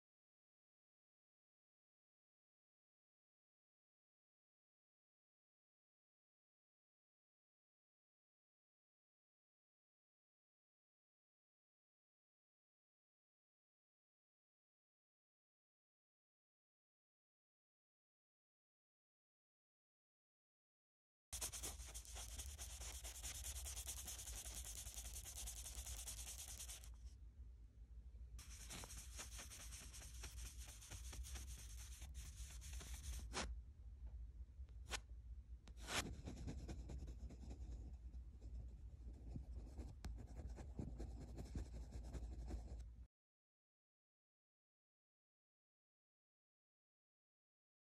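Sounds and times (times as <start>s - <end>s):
pencil scratching on paper: 21.4s - 27.0s, 28.4s - 33.5s, 35.7s - 42.8s.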